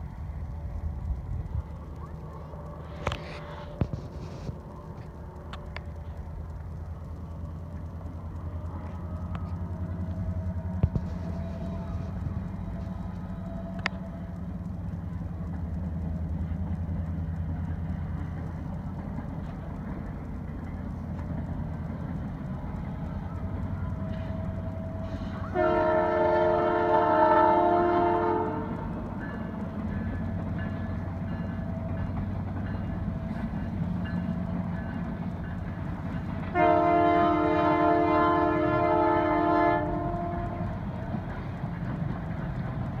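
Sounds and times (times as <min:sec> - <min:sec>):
train rolling rumble: 0:00.0 - 0:43.0
locomotive air horn blasts: 0:24.8 - 0:29.0, 0:36.5 - 0:40.7.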